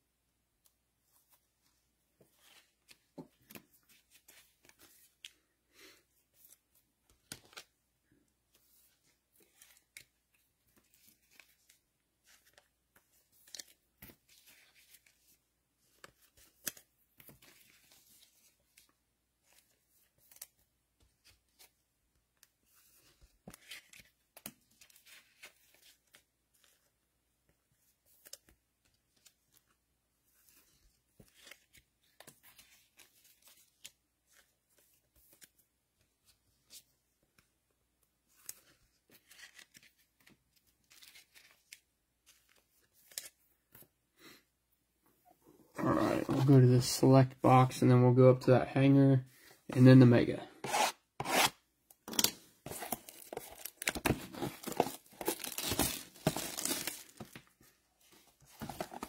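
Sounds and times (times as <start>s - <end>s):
cards clicking and rustling: 50.7s - 59.0s
packaging tearing and crinkling: 52.1s - 57.2s.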